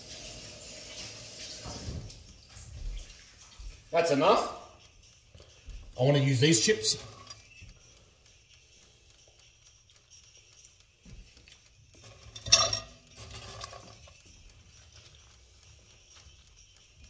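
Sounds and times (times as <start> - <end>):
dishes and utensils clattering: 12.0 - 14.2.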